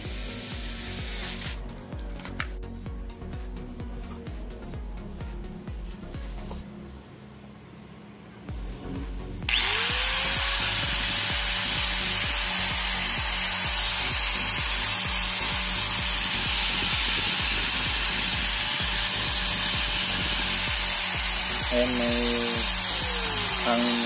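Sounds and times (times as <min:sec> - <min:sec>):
angle grinder motor whining: 0:08.5 - 0:24.0.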